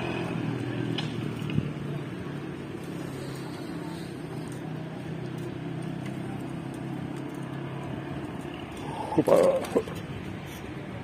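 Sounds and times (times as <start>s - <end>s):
street noise: 0.0s - 11.0s
vehicle engine humming: 0.0s - 11.0s.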